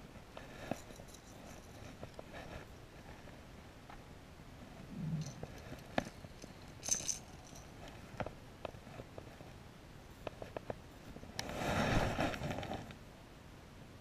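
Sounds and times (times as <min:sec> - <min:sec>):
fishing lure rattling: 0:05.2 - 0:07.8
light clicks and knocks of gear: 0:05.2 - 0:09.6.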